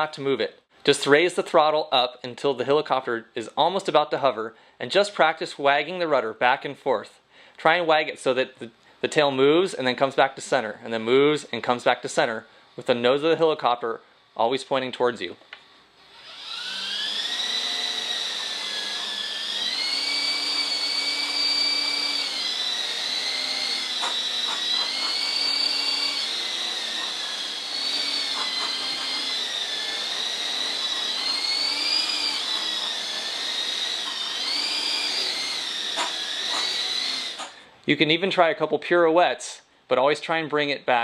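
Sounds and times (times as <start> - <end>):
rc helicopter motors whining: 15.5 - 37.6.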